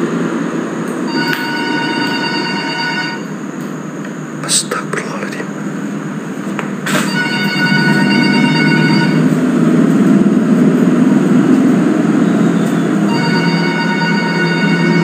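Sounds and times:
low rumbling noise: 0.0s - 15.0s
telephone ringing: 1.0s - 3.4s, 6.9s - 9.4s, 13.0s - 15.0s.

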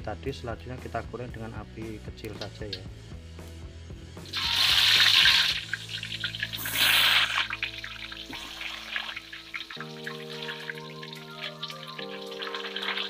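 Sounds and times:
tofu sizzling in hot oil: 4.2s - 13.0s
frying crackle: 4.3s - 13.0s.

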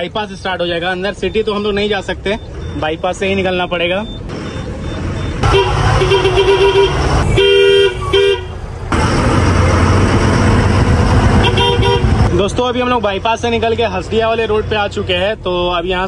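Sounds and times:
engine and road noise: 0.0s - 16.0s
vehicle horns honking: 5.4s - 9.2s, 11.3s - 12.3s.

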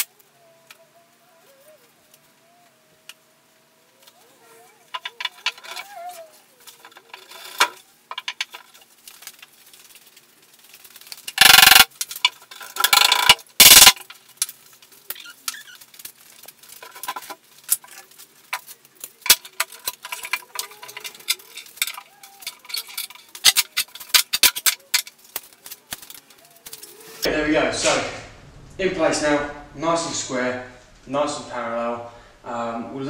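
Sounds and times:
loud bursts of noise: 26.9s - 32.5s.

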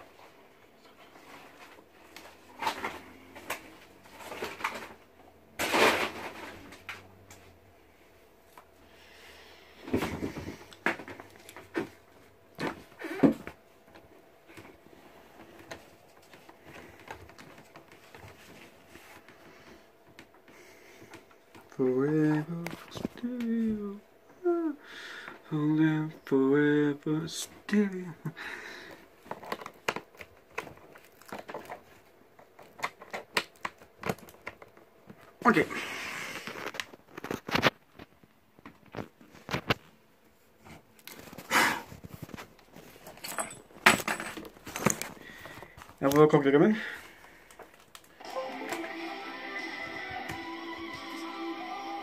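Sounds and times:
handling clicks and crackles: 29.2s - 35.3s, 47.2s - 48.8s.

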